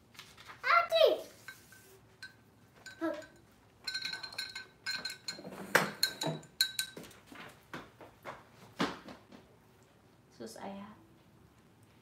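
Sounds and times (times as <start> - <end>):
paintbrushes clinking on glass jar: 1.4 - 7.3.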